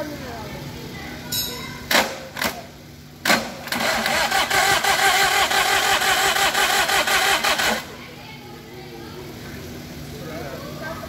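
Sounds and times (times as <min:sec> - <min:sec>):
diesel engine running: 0:02.9 - 0:10.1.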